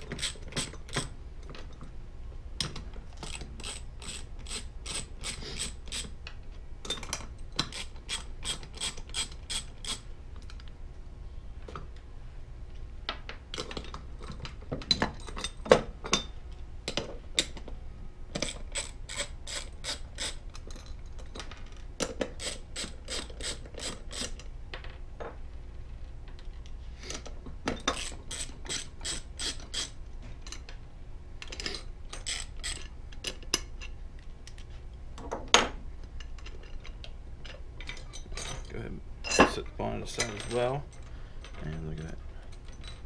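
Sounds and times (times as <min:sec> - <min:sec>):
socket ratchet clicking: 0:07.6 - 0:10.0.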